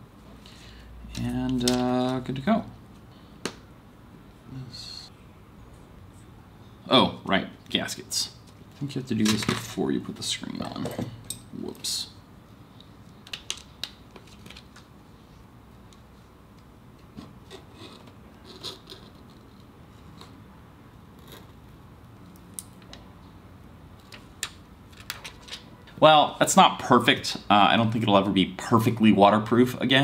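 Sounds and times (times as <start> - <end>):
small clicks taps and crinkles: 12.8 - 14.9.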